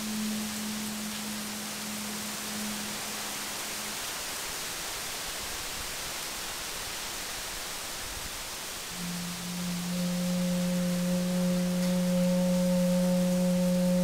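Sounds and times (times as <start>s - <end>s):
bamboo flute low note: 0.0s - 4.1s, 8.9s - 14.0s
steady hiss: 0.0s - 14.0s.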